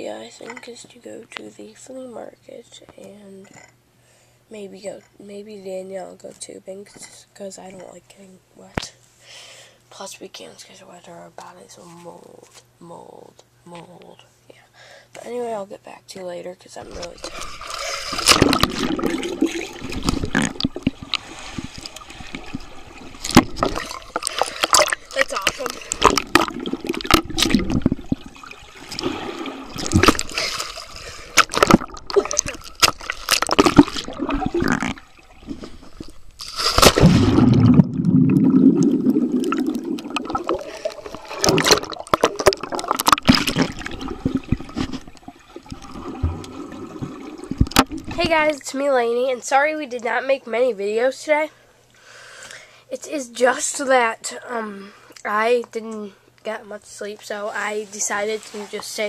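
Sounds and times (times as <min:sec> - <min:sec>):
muffled underwater rumbling: 0:16.8 - 0:48.3
water splashing and bubbling: 0:16.8 - 0:48.5
bubbles rushing past: 0:18.2 - 0:36.2, 0:36.8 - 0:48.2
loud splash: 0:28.8 - 0:35.0, 0:36.5 - 0:44.9.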